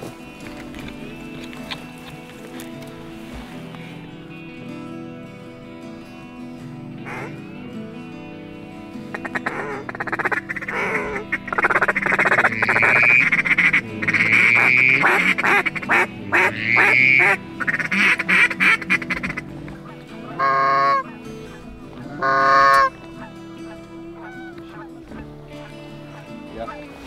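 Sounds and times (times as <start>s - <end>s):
goose call clucks and honks: 7.0s - 7.4s, 9.1s - 26.9s.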